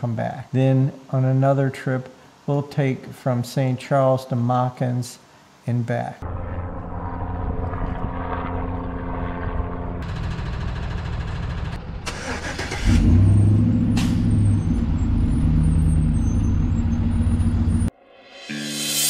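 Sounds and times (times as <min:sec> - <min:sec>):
vehicle engine humming: 0:06.2 - 0:17.9.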